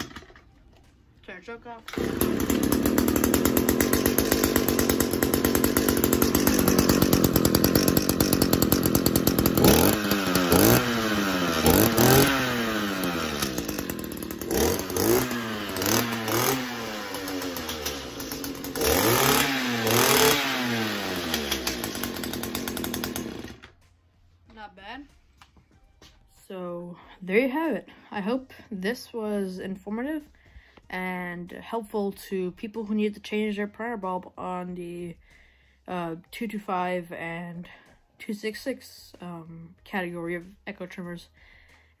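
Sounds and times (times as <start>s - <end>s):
string trimmer engine revving: 1.8s - 23.7s.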